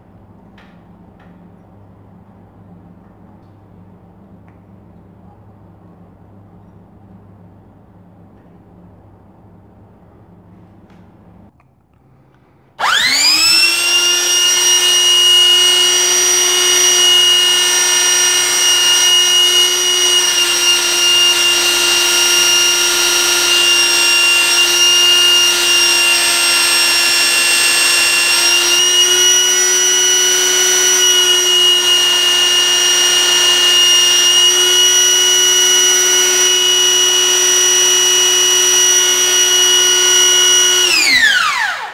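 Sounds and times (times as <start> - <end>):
belt sander whining: 12.8 - 41.9.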